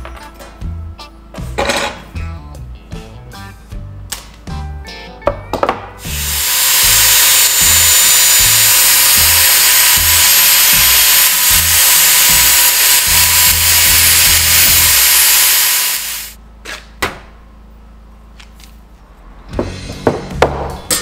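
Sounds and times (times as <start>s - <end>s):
angle grinder whining on metal: 6.0s - 16.4s.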